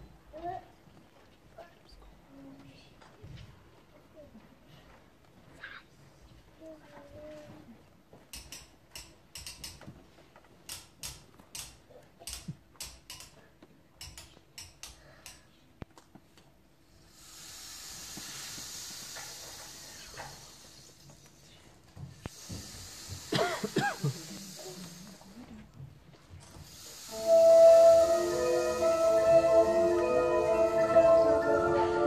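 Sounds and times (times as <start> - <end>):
steady hiss: 16.8 - 32.0.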